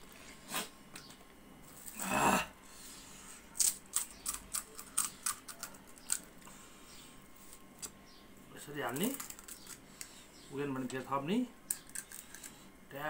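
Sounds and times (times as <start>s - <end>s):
crisp shell cracking: 3.6s - 6.5s, 8.9s - 10.1s, 11.6s - 12.6s.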